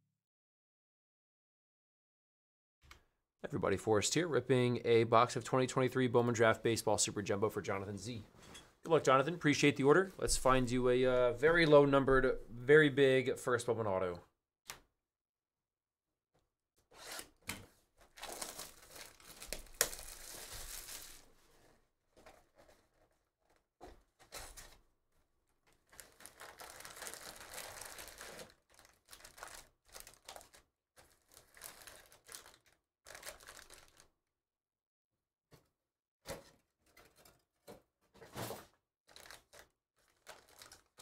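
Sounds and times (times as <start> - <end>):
plastic wrap tearing and crinkling: 18.1 - 21.3, 25.7 - 34.1, 39.1 - 41.0.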